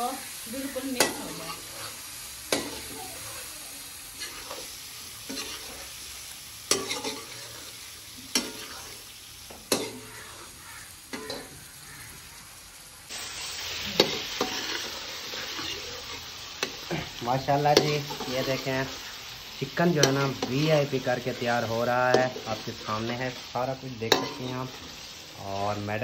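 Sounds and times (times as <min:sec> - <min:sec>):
chicken sizzling in a pot: 0:00.0 - 0:26.0
metal ladle scraping a pot: 0:04.2 - 0:04.7, 0:05.3 - 0:05.9, 0:06.7 - 0:07.8, 0:08.4 - 0:09.0, 0:14.4 - 0:16.2.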